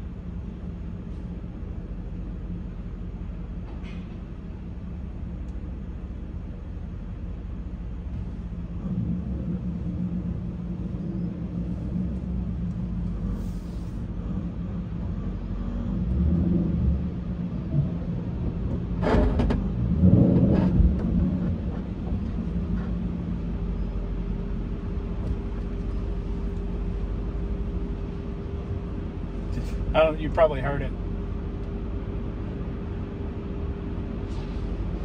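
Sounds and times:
car engine idling: 0.0 - 16.3, 20.6 - 35.0
suspension scraping knocks: 17.6 - 23.4.

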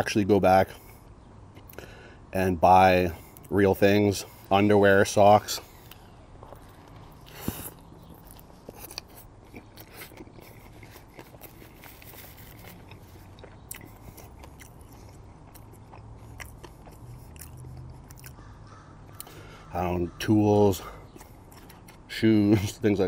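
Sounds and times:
biting into a bun: 5.7 - 18.5, 21.1 - 22.1
wet chewing: 5.7 - 19.4, 21.0 - 22.1.

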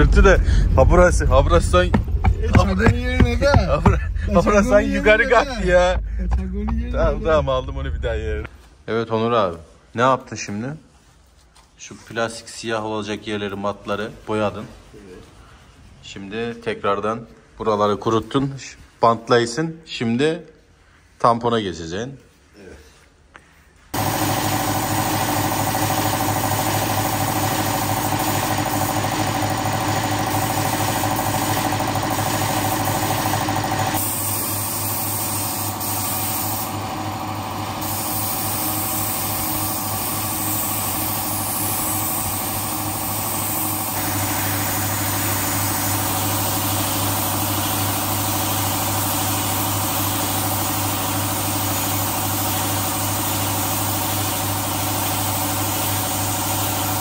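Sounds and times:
air compressor running: 24.0 - 57.0
paint spray gun hissing: 24.0 - 57.0.

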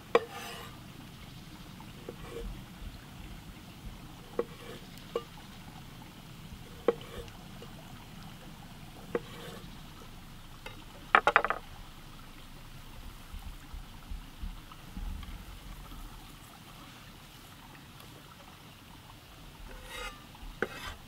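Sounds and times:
knife tapping on wooden board: 11.2 - 11.6.

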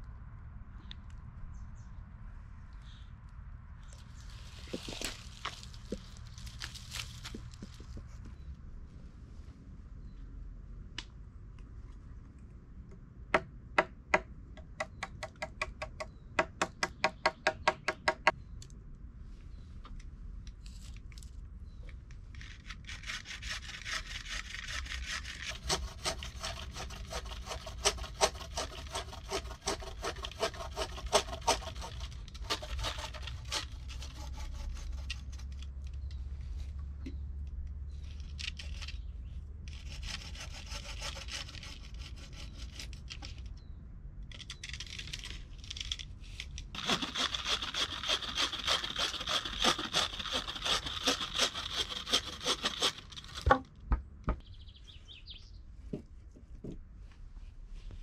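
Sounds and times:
hand saw cutting wood: 22.9 - 35.5, 39.7 - 43.0, 46.8 - 53.6.

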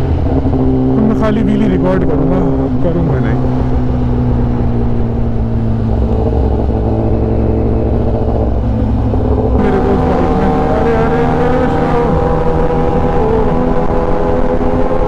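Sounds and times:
motorcycle engine cruising: 0.0 - 15.0
wind rumble on microphone: 0.0 - 15.0.

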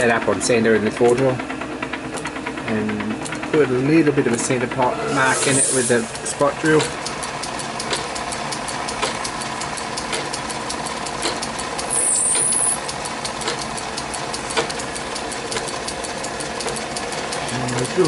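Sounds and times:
fast ticking from machine: 0.0 - 4.9, 5.6 - 18.0
metal lathe running: 0.0 - 18.0
high squeal from cutting: 4.8 - 6.2, 11.9 - 12.8.

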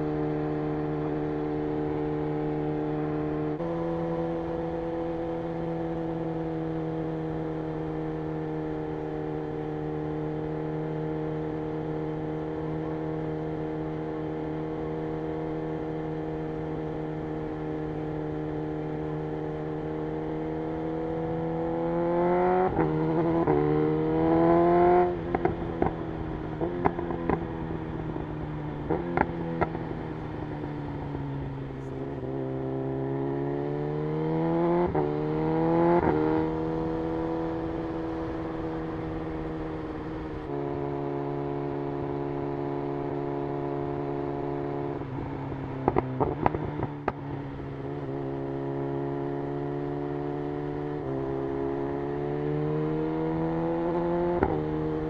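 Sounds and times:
motorcycle engine revving: 0.0 - 55.0
exhaust pops and crackles: 45.8 - 47.2.

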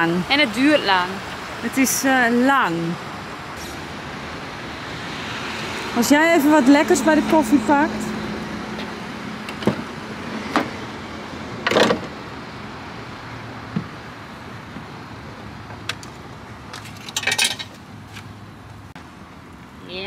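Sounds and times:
rattling of items handled: 15.8 - 18.4.

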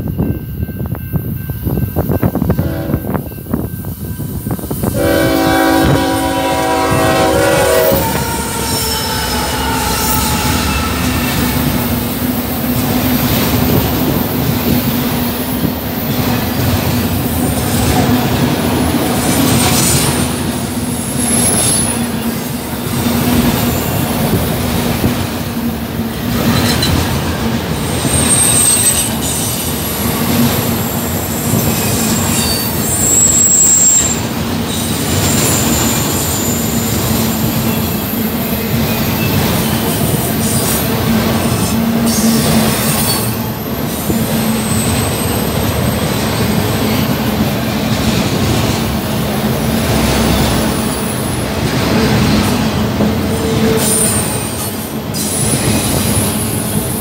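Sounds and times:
train wheels rumbling on rail: 0.0 - 57.0
high wheel squeals: 3.8 - 11.7, 27.8 - 29.6, 31.2 - 40.8.

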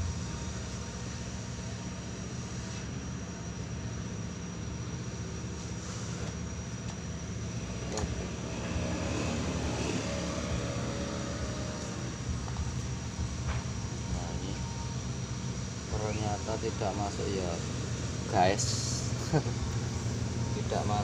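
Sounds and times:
low background rumble: 0.0 - 2.6, 11.4 - 21.0.

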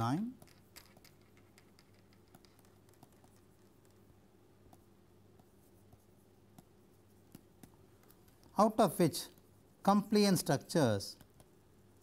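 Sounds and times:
low electrical hum: 0.0 - 12.0
stylus tapping on screen: 0.3 - 8.5.

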